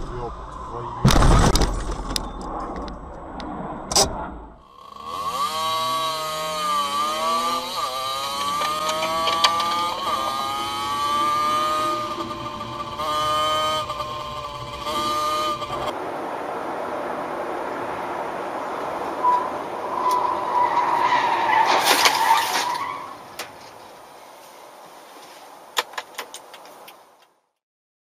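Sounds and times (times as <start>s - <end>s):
motorcycle engine revving: 4.6s - 16.0s.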